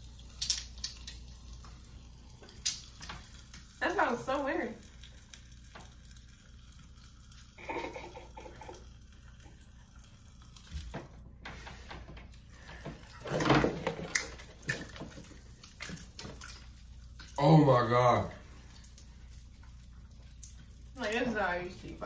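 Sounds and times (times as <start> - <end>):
popping candy crackling: 0.0 - 11.1
people laughing: 7.6 - 8.8.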